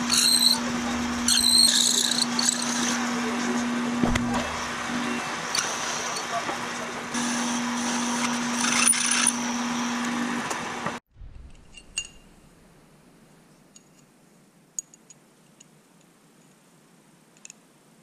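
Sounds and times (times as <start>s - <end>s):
milling machine drilling metal: 0.0s - 3.1s, 7.2s - 10.2s
light metallic clinks: 11.5s - 12.5s.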